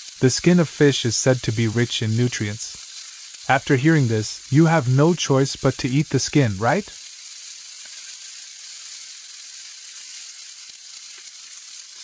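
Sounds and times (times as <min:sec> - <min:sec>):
fish sizzling in oil: 0:00.0 - 0:12.0.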